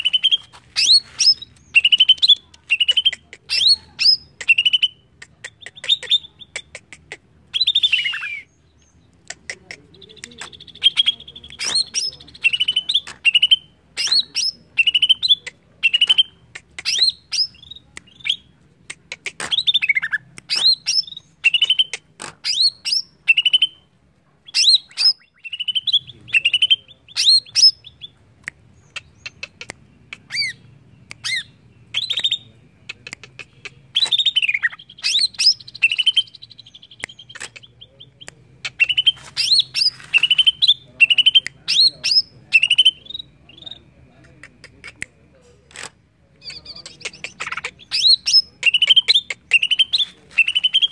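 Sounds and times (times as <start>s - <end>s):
bird singing whistled notes: 24.5s - 28.2s, 34.0s - 43.8s, 47.8s - 50.9s.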